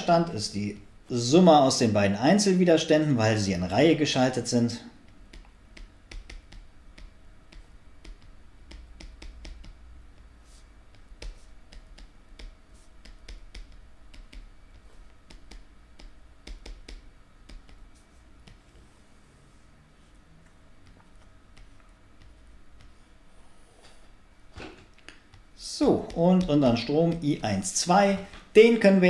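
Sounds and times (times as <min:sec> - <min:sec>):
low steady hum: 0:00.0 - 0:29.0
stylus tapping on screen: 0:04.9 - 0:18.8, 0:20.4 - 0:23.0, 0:24.8 - 0:28.6.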